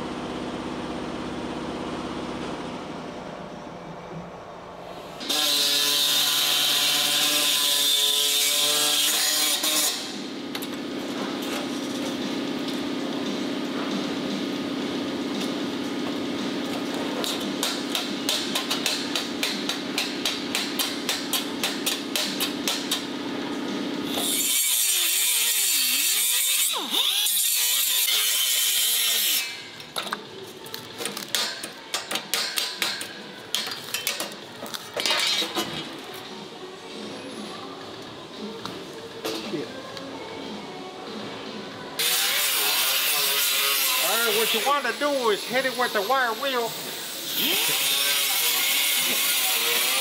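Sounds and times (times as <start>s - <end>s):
cut-off tool grinding metal: 5.2s - 10.2s, 24.1s - 29.7s, 42.0s - 46.1s, 47.0s - 50.0s
metal and tools clattering: 29.8s - 36.2s.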